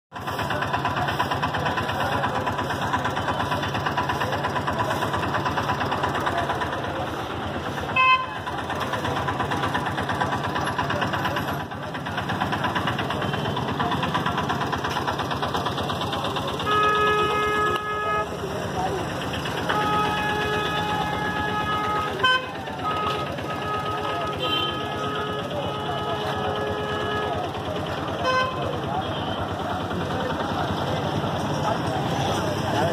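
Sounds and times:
auto-rickshaw engine idling: 0.1 - 32.9
street traffic: 0.1 - 32.9
horn beeping: 7.9 - 8.5, 16.6 - 18.6, 19.4 - 29.5.

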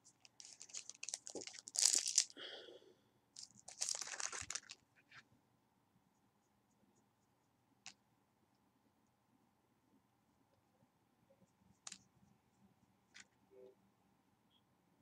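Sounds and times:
makeup items rustling and clicking: 0.1 - 2.3, 3.4 - 4.8.

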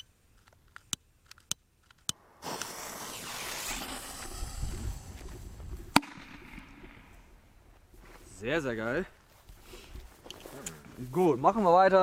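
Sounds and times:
fuse hissing: 2.4 - 5.7.

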